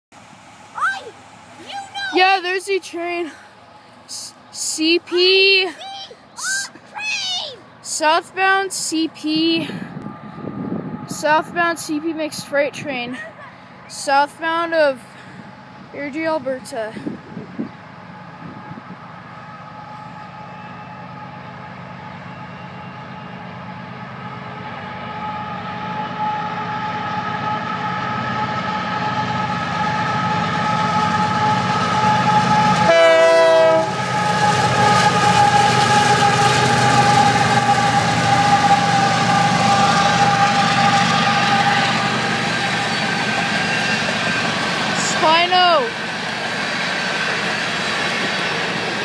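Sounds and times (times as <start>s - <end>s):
diesel locomotive rumble: 0.1s - 49.0s.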